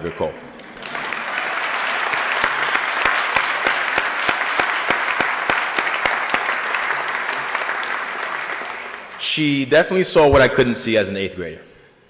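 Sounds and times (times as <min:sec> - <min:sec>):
hands clapping sharply: 0:00.0 - 0:09.3
audience applauding: 0:00.0 - 0:09.7.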